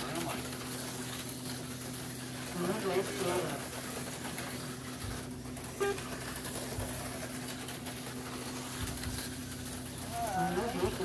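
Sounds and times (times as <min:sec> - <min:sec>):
low electrical hum: 0:00.0 - 0:11.0
slot car motors whirring: 0:00.0 - 0:11.0
short squeak: 0:05.8 - 0:06.1.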